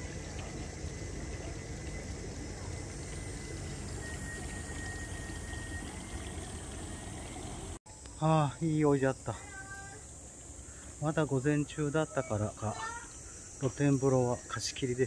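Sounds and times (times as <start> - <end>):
pond water running: 0.0 - 15.0.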